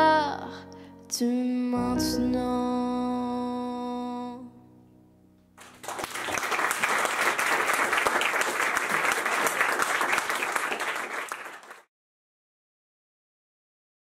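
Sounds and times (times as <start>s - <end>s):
audience applause: 5.6s - 11.9s.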